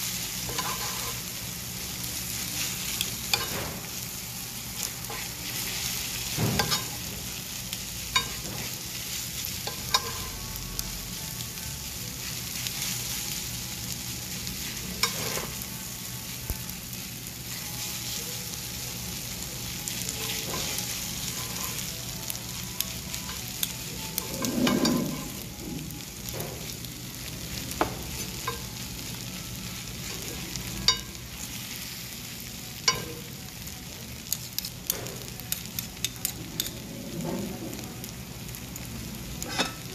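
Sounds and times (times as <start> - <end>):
fried rice sizzling in a pan: 0.0 - 39.9
metal spoon scraping a pan: 0.5 - 1.2, 6.4 - 7.0, 24.2 - 25.4, 39.4 - 39.9
spoon clinking against a pan: 6.6 - 7.0, 8.1 - 8.6, 9.6 - 10.3, 15.0 - 15.6, 30.8 - 31.2, 32.8 - 33.3, 39.4 - 39.9.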